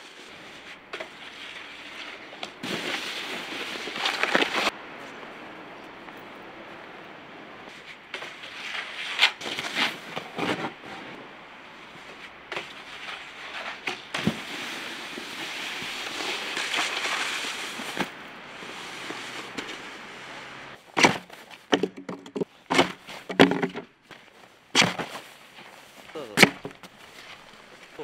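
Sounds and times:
snowboard scraping on snow: 0:00.0 - 0:04.7, 0:07.7 - 0:21.6.

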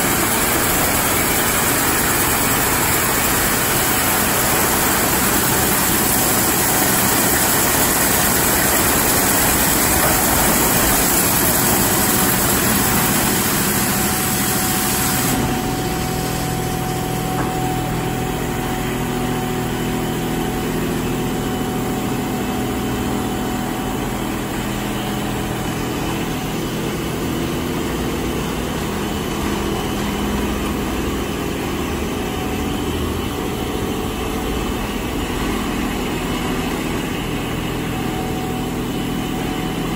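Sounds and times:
high-pressure water spray hissing: 0:00.0 - 0:16.7
car wash machine hum: 0:00.0 - 0:39.9.

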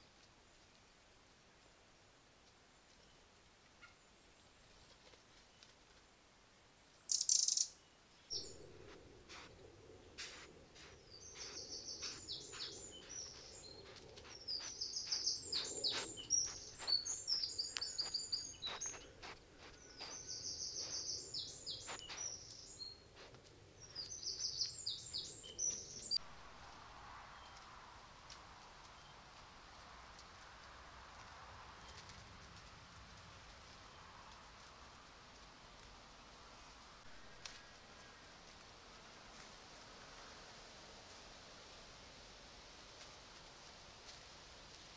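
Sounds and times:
songbirds singing: 0:06.8 - 0:26.2.

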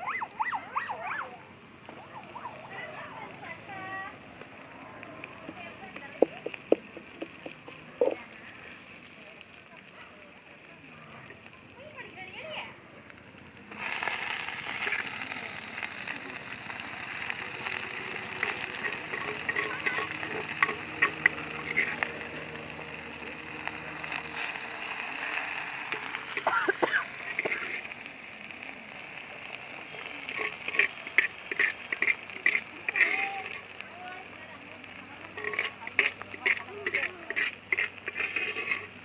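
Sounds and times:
leaves sizzling in hot oil: 0:00.0 - 0:39.0
spattering oil pops: 0:05.2 - 0:08.2.

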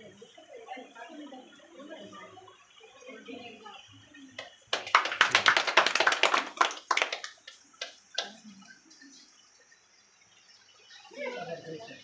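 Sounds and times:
people clapping: 0:04.4 - 0:08.6.

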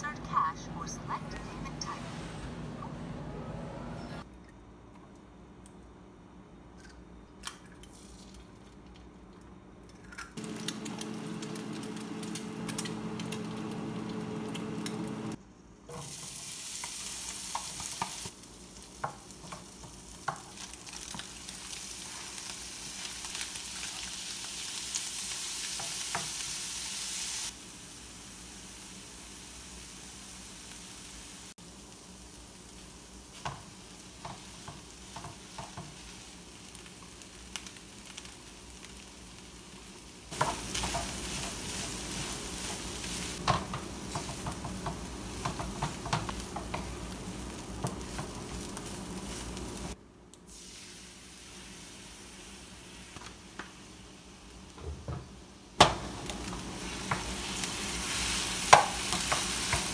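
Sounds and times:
low hum: 0:00.0 - 0:04.2
food sizzling in a frying pan: 0:10.4 - 0:59.9.

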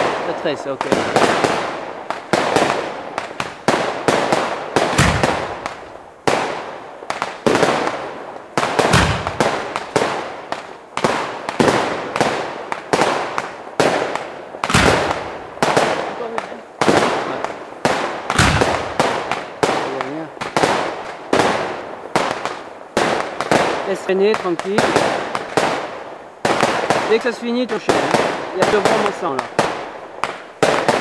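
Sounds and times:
deep fireworks booms: 0:00.0 - 0:31.0
fireworks bangs: 0:00.0 - 0:31.0.

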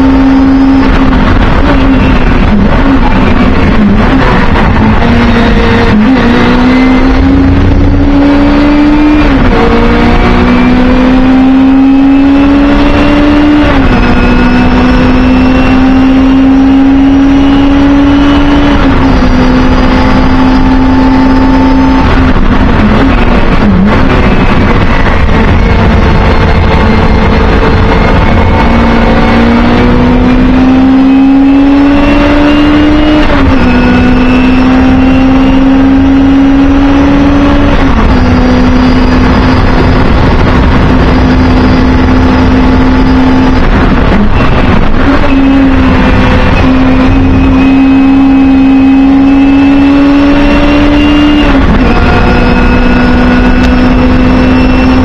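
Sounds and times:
racing car engine at full throttle: 0:00.0 - 0:55.0.

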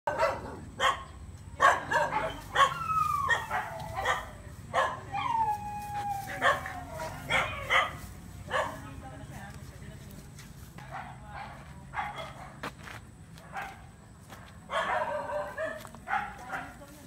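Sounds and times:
dog yipping and barking: 0:00.1 - 0:08.8, 0:14.7 - 0:16.7.

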